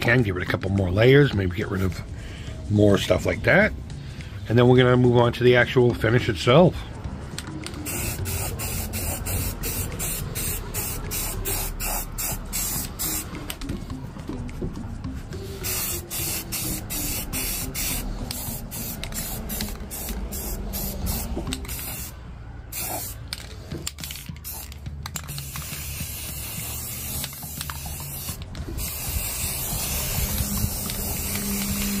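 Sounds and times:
aerosol can spraying: 0:07.8 - 0:13.7, 0:15.4 - 0:23.3, 0:24.1 - 0:32.0.

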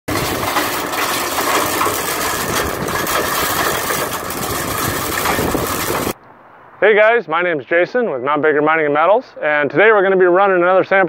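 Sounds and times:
hammer mill running: 0:00.0 - 0:06.2.

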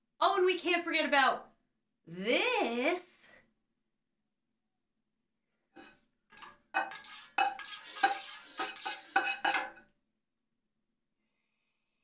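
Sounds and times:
metal ladle clanking in pot: 0:06.3 - 0:09.8.

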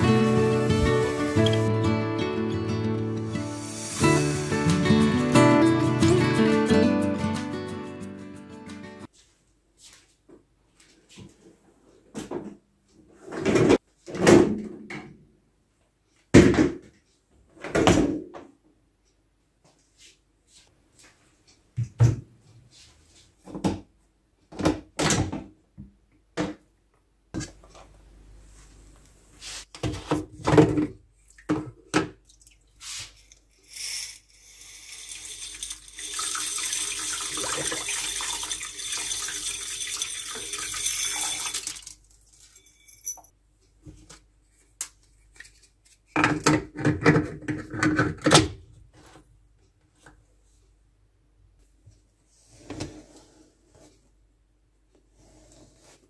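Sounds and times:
salt pouring: 0:00.0 - 0:01.7, 0:03.5 - 0:05.4, 0:32.8 - 0:42.6
plastic cap clinks and scrapes: 0:33.1 - 0:36.1.

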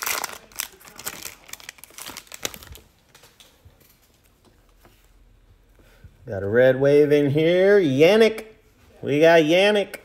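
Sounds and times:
foil wrapper crinkling: 0:00.0 - 0:04.0.

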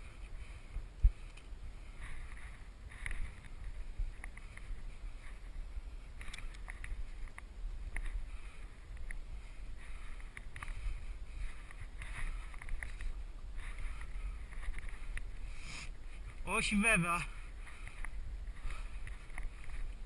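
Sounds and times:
wind rumble on microphone: 0:00.0 - 0:16.5, 0:17.3 - 0:20.0
hard breathing: 0:08.0 - 0:16.4, 0:17.3 - 0:20.0.

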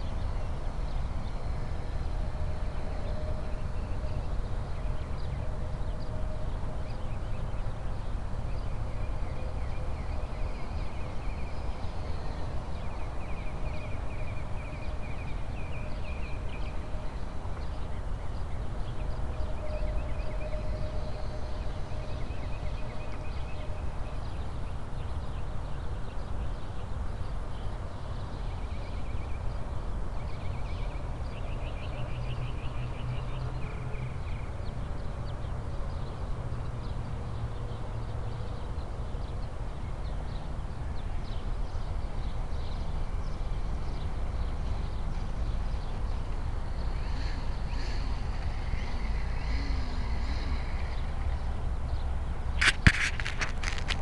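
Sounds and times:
wind rumble on microphone: 0:00.0 - 0:54.0
birds chirping: 0:38.4 - 0:54.0.

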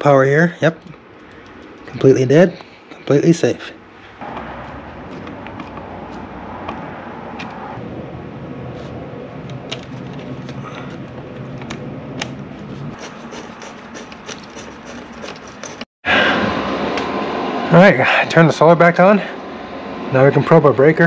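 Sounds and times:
steady low hum: 0:00.0 - 0:21.0
screwdriver and wrench clicking: 0:13.3 - 0:15.8.

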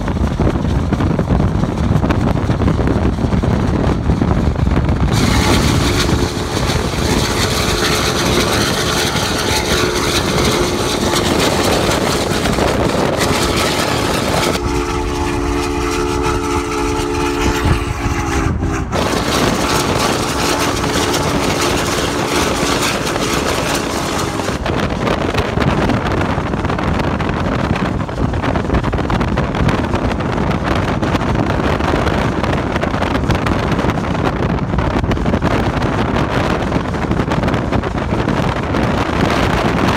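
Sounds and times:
wind and road noise: 0:00.0 - 0:39.9
steam locomotive chime whistle: 0:05.1 - 0:12.3, 0:13.2 - 0:24.6.

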